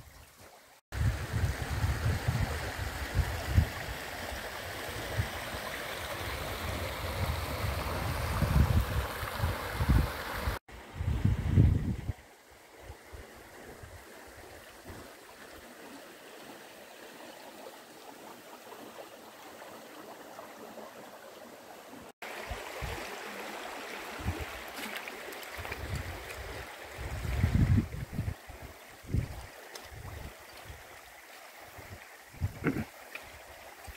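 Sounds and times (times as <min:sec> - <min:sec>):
creek running over stones: 0:00.0 - 0:10.7, 0:11.8 - 0:33.9.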